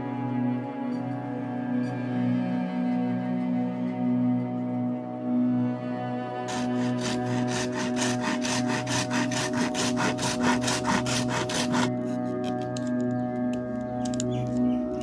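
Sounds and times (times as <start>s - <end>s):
saw cutting bamboo: 6.5s - 12.8s.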